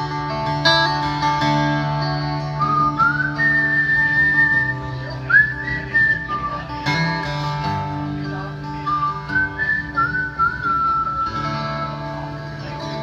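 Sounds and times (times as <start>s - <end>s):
acoustic guitar strumming: 0.0s - 13.0s
man whistling a melody: 2.6s - 6.7s, 8.8s - 12.1s.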